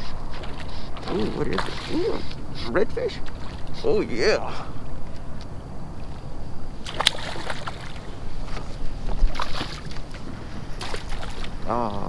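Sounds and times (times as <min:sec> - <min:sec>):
water splashing and sloshing: 0:00.0 - 0:04.4, 0:06.8 - 0:12.0.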